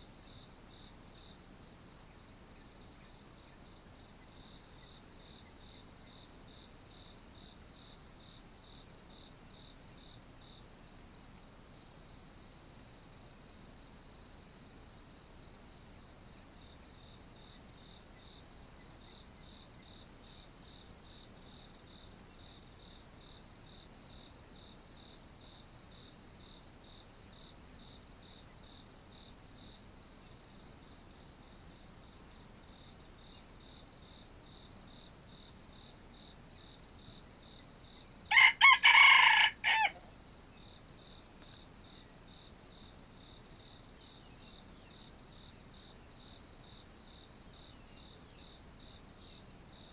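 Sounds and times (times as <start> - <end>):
insect trill: 13.7 - 49.9
rooster crowing: 38.3 - 40.1.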